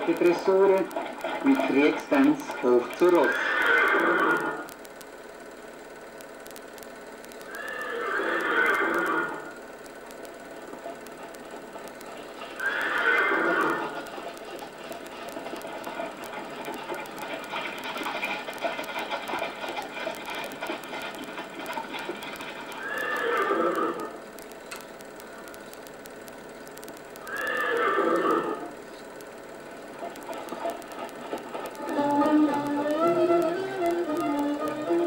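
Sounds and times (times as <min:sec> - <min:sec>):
hooves clattering: 0:00.0 - 0:04.8, 0:07.3 - 0:35.0
horse whinnying: 0:03.2 - 0:04.7, 0:07.5 - 0:09.5, 0:12.6 - 0:14.0, 0:22.8 - 0:24.2, 0:27.3 - 0:28.7.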